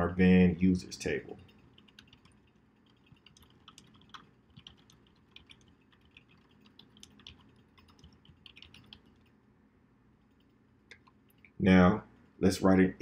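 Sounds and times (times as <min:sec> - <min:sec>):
keyboard typing: 0:01.0 - 0:09.3.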